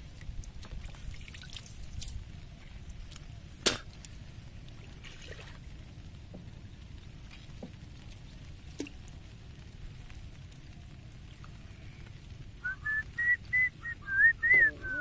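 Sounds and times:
water dripping and trickling: 0.0 - 13.9
small splashes: 0.1 - 2.3, 4.7 - 5.8.

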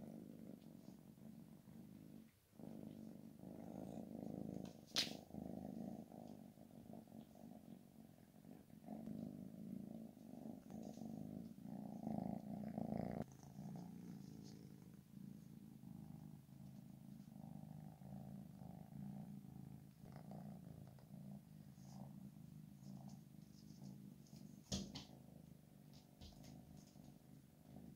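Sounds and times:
kitten purring: 0.0 - 27.9.

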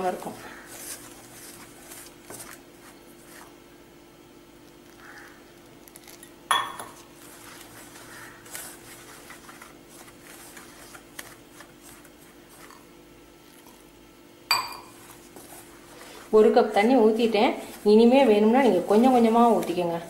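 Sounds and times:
fingers stirring flour in bowl: 0.0 - 3.6, 6.9 - 13.9, 14.9 - 20.0
steel cup clinking on bowl: 6.5 - 7.0, 14.5 - 15.0.

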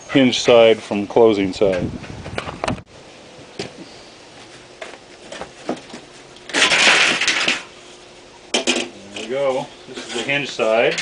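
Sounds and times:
loud scraping of wood: 8.9 - 10.7.

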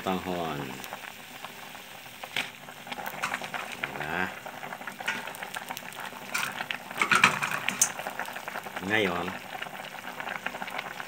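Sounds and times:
soup boiling in a pot: 0.0 - 11.0.

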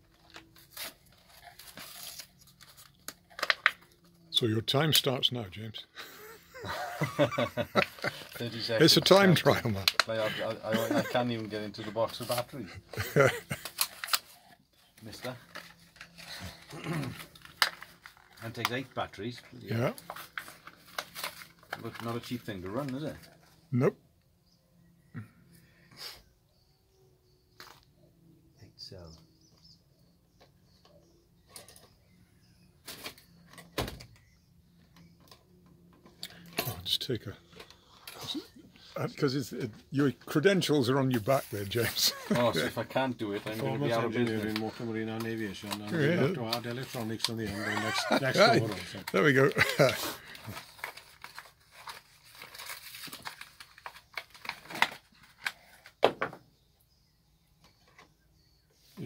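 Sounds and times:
packaging crinkling: 0.1 - 3.9, 13.3 - 18.8, 19.8 - 23.0, 44.3 - 55.9.

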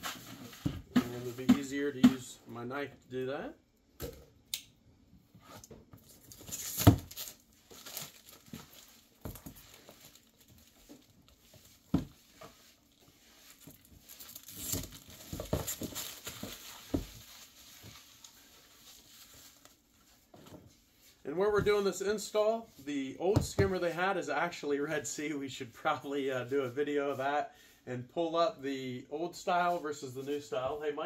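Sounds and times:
plastic packaging crinkling and tearing: 6.0 - 11.4, 13.5 - 19.9.

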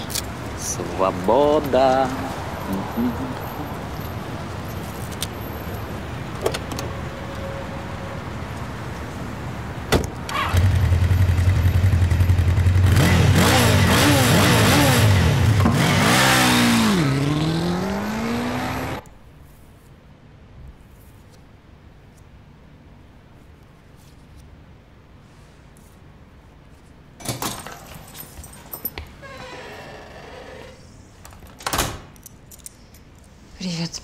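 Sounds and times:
outdoor background noise: 0.0 - 34.0
car engine revving: 10.4 - 19.0.

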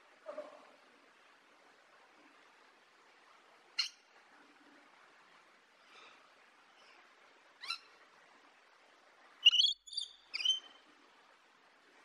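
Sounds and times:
faint hiss: 0.0 - 12.0
lorikeet chirping calls: 9.4 - 10.7.

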